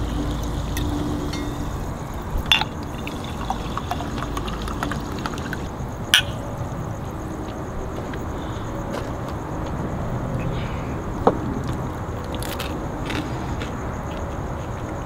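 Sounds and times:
liquid pouring into glass: 0:00.4 - 0:05.7
glass ticking on glass: 0:00.7 - 0:06.3
sharp glass clink: 0:00.8 - 0:01.8.

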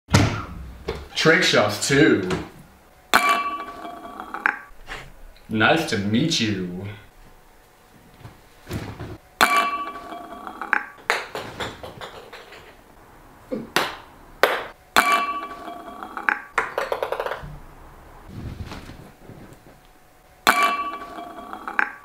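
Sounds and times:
ball hitting glass with ringing ping: 0:03.1 - 0:04.7, 0:09.4 - 0:11.3, 0:13.8 - 0:17.0, 0:20.5 - 0:22.0
ping-pong ball bouncing clicks: 0:03.2 - 0:04.7, 0:09.4 - 0:12.8, 0:13.8 - 0:17.4, 0:20.5 - 0:22.0.

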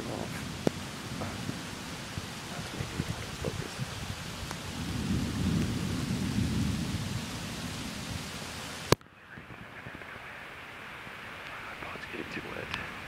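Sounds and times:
low rumble of thunder: 0:00.0 - 0:10.0
steady rain: 0:00.0 - 0:13.0.

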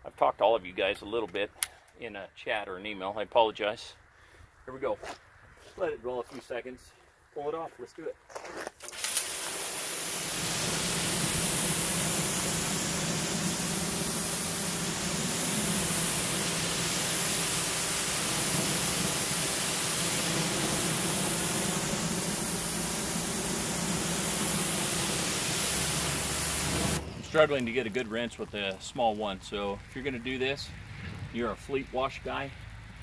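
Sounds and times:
pressure washer spray: 0:08.8 - 0:29.3.

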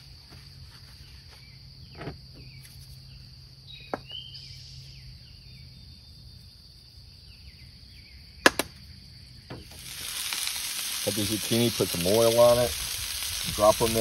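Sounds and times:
insects droning: 0:00.0 - 0:14.0
faint bird chirps: 0:01.0 - 0:06.3.

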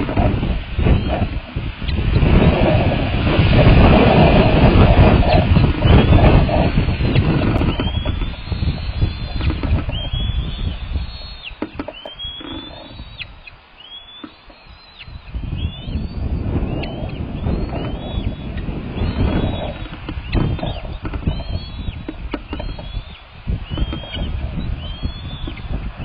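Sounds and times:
wind buffeting the microphone: 0:00.0 - 0:26.0
eagle high thin chirps: 0:05.2 - 0:25.8.

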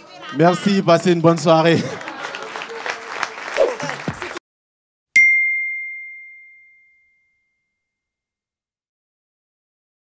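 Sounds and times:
audience noise: 0:00.0 - 0:04.4
bright ding: 0:05.2 - 0:07.9.

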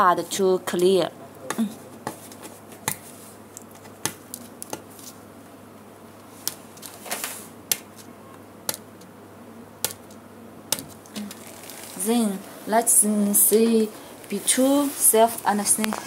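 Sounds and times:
adhesive tape peeling with crackles: 0:03.5 - 0:05.2, 0:06.4 - 0:08.1, 0:09.8 - 0:12.2.

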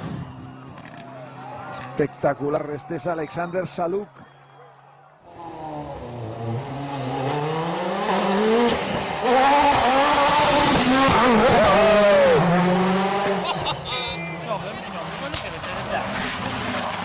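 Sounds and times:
rally car engine revving: 0:05.3 - 0:17.0.

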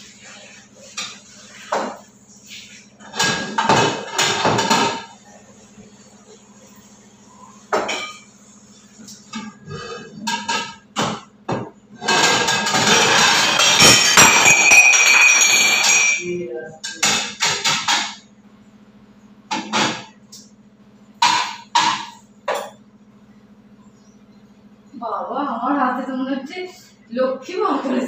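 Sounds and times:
ceramic dishes clinking on shelves: 0:09.1 - 0:18.2, 0:21.2 - 0:22.8.

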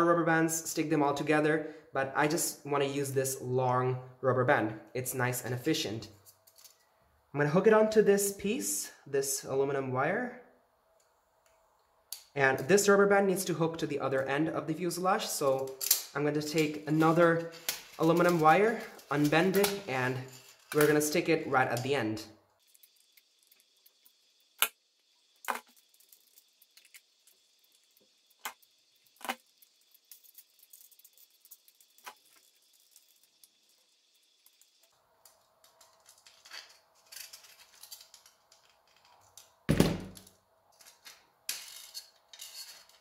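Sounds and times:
pliers clicking on wire: 0:15.6 - 0:16.7.

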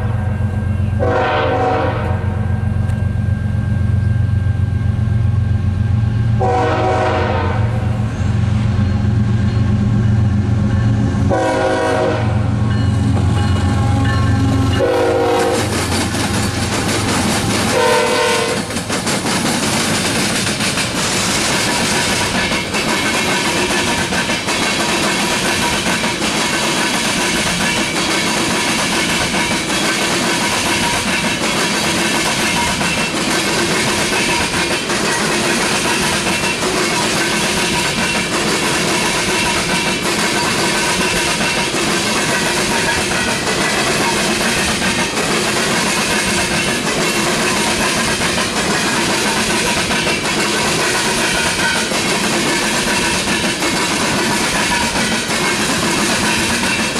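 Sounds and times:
diesel locomotive engine drone: 0:00.0 - 0:56.9
train horn blasts: 0:01.0 - 0:02.6, 0:06.4 - 0:08.0, 0:11.3 - 0:15.8, 0:17.6 - 0:18.7
train wheels clacking over rail joints: 0:08.8 - 0:56.9.

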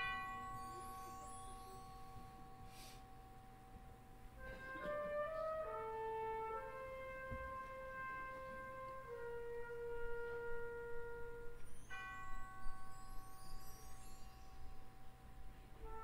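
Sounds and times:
high glittering shimmer: 0:00.0 - 0:04.6, 0:11.3 - 0:16.0
wind band playing slowly: 0:04.2 - 0:12.7, 0:15.6 - 0:16.0.

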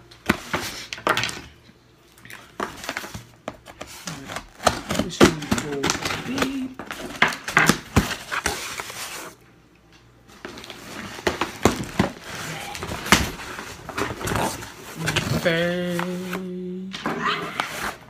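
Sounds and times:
packing tape tearing: 0:10.5 - 0:16.6.

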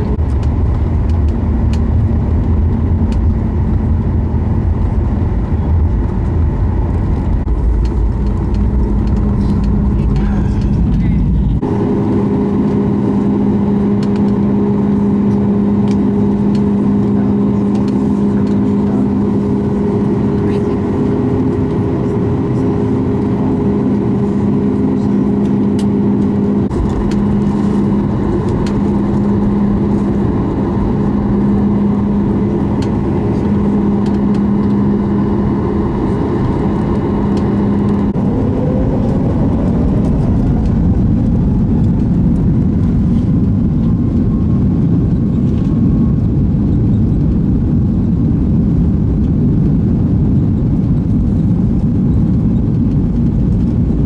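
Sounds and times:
jet engine rumble in cabin: 0:00.0 - 0:54.0
rising whine: 0:00.0 - 0:54.0
steady hum: 0:00.0 - 0:54.0
airflow: 0:07.5 - 0:44.4.

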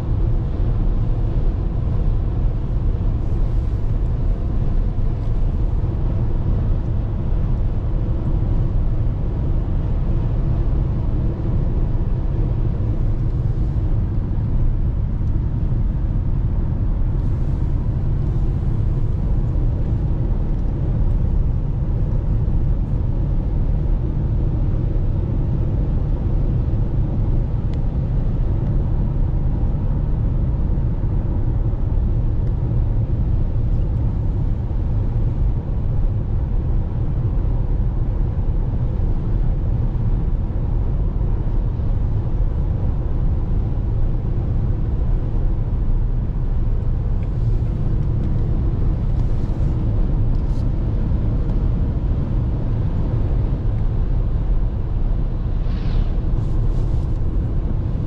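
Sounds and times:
car road noise at highway speed: 0:00.0 - 0:58.0.

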